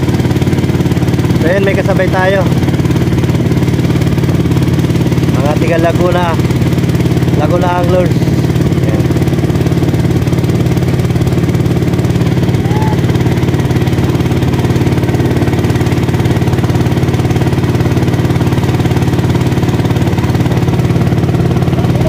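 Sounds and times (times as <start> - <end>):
small boat motor running: 0.0 - 22.0.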